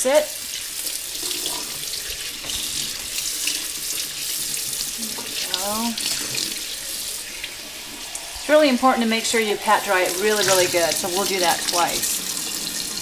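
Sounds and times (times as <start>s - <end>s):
faucet running into sink: 0.2s - 13.0s.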